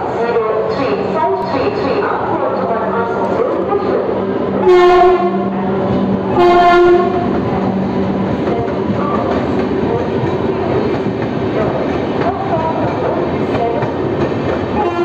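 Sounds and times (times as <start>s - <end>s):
train coaches rumbling past: 0.0s - 15.0s
locomotive air horn blasts: 4.6s - 5.5s, 6.3s - 7.3s.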